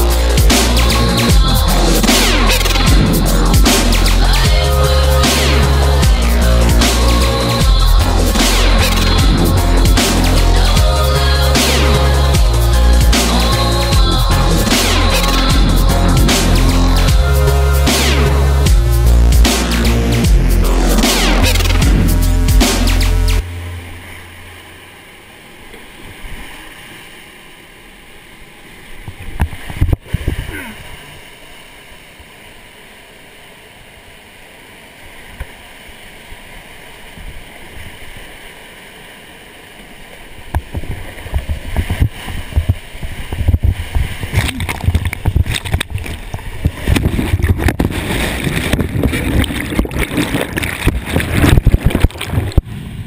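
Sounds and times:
rushing whitewater: 23.0s - 53.0s
water splashing on microphone: 39.9s - 53.0s.

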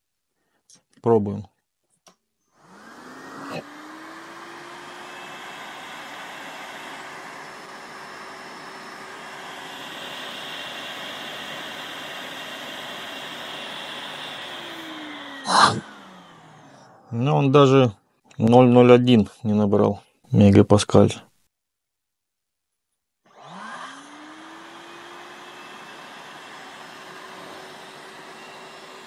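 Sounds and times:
vacuum cleaner motor whine: 2.5s - 17.2s, 23.3s - 29.0s.

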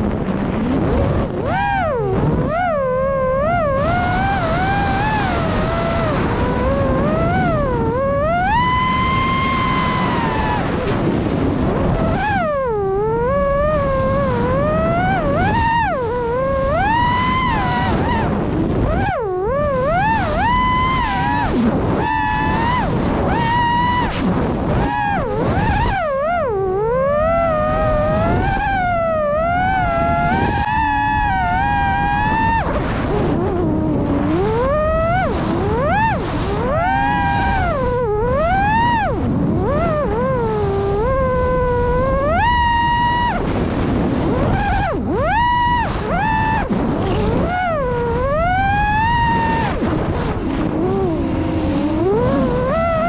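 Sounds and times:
electric plane motor whining: 0.0s - 53.0s
wind rushing over microphone: 0.0s - 53.0s.

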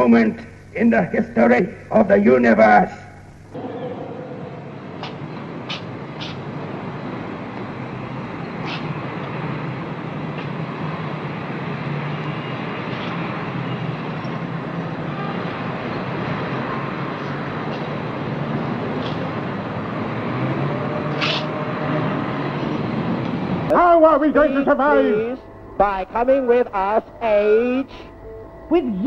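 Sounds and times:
city street traffic: 0.0s - 29.0s.

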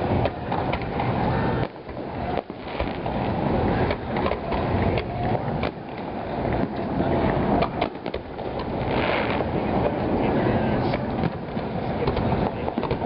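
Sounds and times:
fireworks popping and banging: 0.0s - 6.9s, 7.6s - 10.0s, 10.8s - 13.0s
steady rumbling background: 0.0s - 13.0s.

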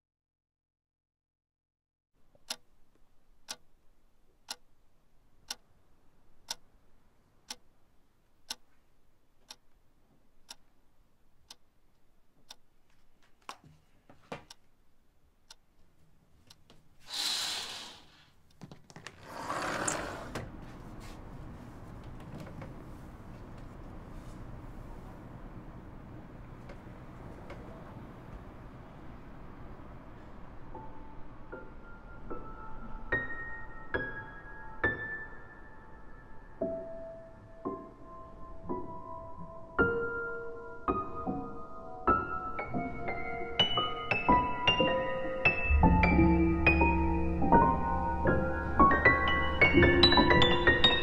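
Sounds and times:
clock ticking: 2.4s - 2.8s, 3.4s - 3.7s, 4.5s - 4.7s, 5.4s - 5.7s, 6.4s - 6.7s, 7.4s - 7.8s, 8.4s - 8.7s, 9.4s - 9.7s, 10.4s - 10.7s, 11.4s - 11.7s, 12.4s - 12.7s, 16.5s - 16.7s
background hiss: 16.5s - 18.5s
curtain swishing: 17.0s - 18.3s.

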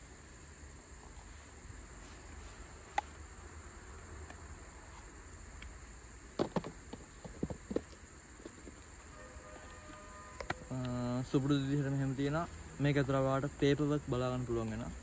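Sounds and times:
high-pitched insect drone: 7.2s - 15.0s.

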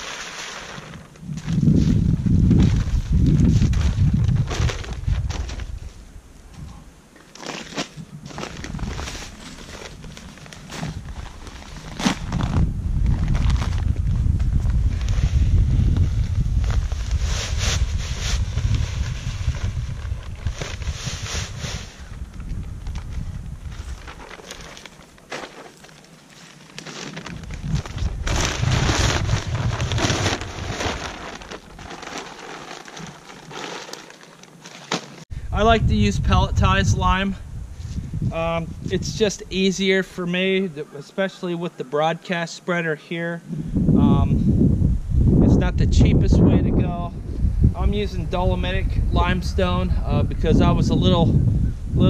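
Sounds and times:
wind rumble on microphone: 0.7s - 7.0s, 8.0s - 24.7s, 27.2s - 32.0s, 35.3s - 39.8s, 43.4s - 52.0s
plastic bag crinkling: 22.8s - 35.2s
pellets pouring into hopper: 28.3s - 34.2s.

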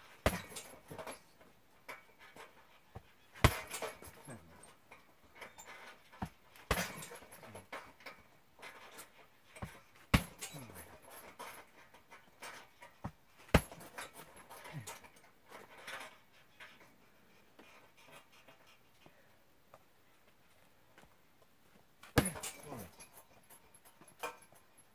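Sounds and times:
kicks thudding on punching bag: 0.2s - 0.8s, 3.4s - 4.1s, 6.2s - 7.2s, 9.6s - 10.4s, 13.5s - 13.9s, 22.2s - 22.6s.

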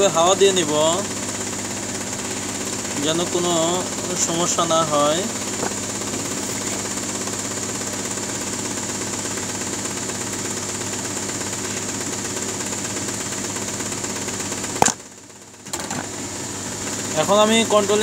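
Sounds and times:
electric air blower running: 0.0s - 18.0s.

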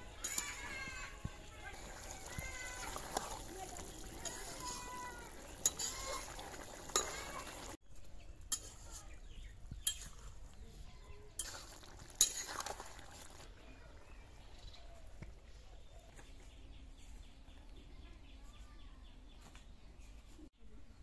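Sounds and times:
curry simmering: 0.0s - 7.8s, 9.8s - 15.4s
metal spatula clinking on pan: 5.5s - 6.2s, 9.8s - 10.2s.

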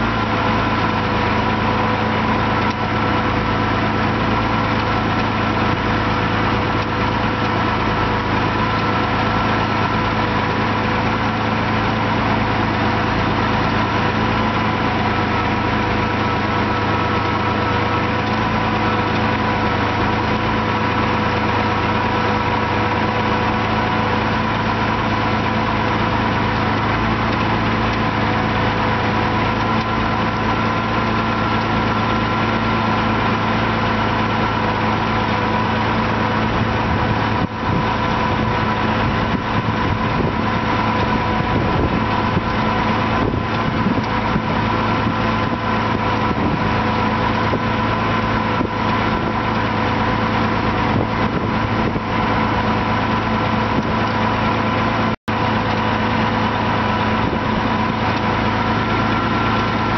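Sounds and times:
tractor engine running: 0.0s - 59.9s.

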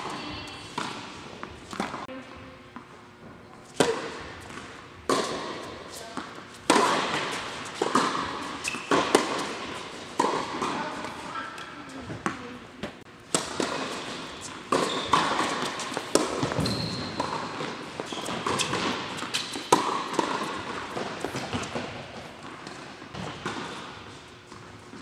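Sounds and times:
racket striking tennis ball: 0.0s - 2.1s, 3.7s - 24.2s
shoe squeaks: 8.6s - 9.0s, 14.8s - 15.5s, 16.4s - 19.7s
ball bouncing on court: 12.1s - 23.8s.

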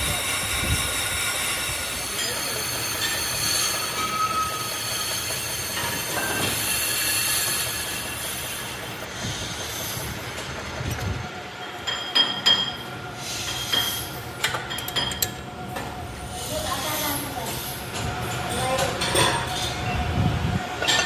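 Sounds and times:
lathe tool squealing: 0.0s - 10.2s.

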